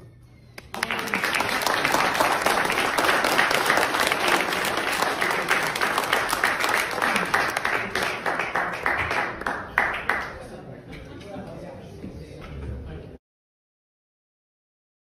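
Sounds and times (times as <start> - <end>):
audience applauding: 0.6 - 10.5.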